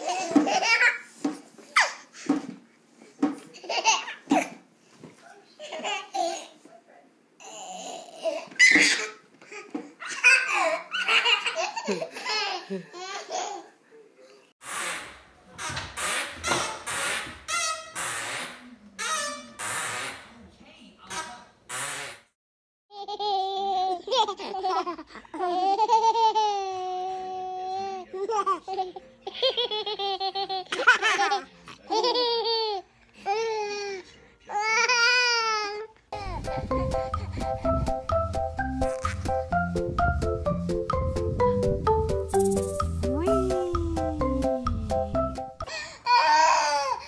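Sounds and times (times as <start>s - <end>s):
babies laughing: 8.2s - 13.7s, 23.0s - 27.2s.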